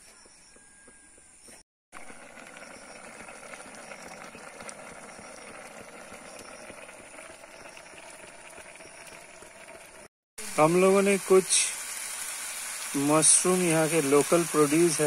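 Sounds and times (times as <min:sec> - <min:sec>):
noodles boiling with bubbling hiss: 0:02.0 - 0:15.0.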